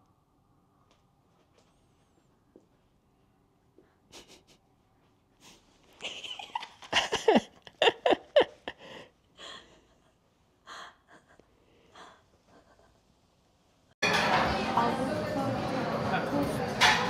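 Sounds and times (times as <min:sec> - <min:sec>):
woman laughing: 0:04.1 - 0:04.6, 0:06.0 - 0:10.1.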